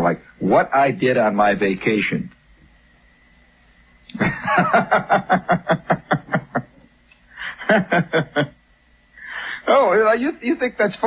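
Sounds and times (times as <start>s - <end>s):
man laughing: 4.1s - 6.8s, 7.4s - 8.6s.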